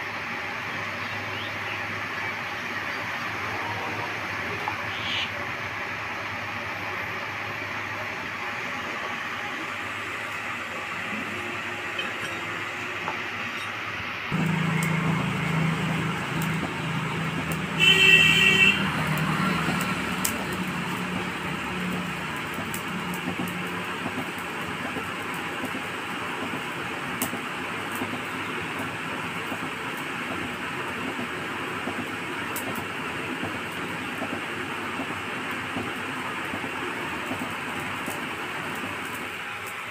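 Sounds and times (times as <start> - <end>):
coal forge blowing: 0.0 - 39.9
low hum: 10.7 - 18.2.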